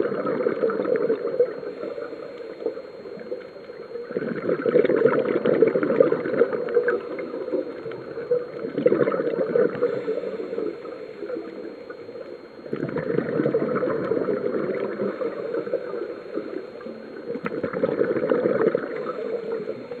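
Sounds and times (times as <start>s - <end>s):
exhaled air bubbling: 0.0s - 20.0s
scuba diver breathing underwater: 8.6s - 11.8s.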